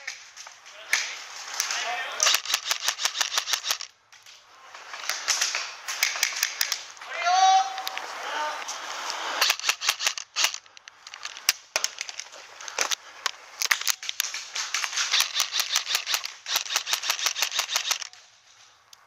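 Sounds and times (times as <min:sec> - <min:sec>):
airsoft rifle firing bursts: 0:02.2 - 0:03.9, 0:09.4 - 0:11.4, 0:13.7 - 0:18.2.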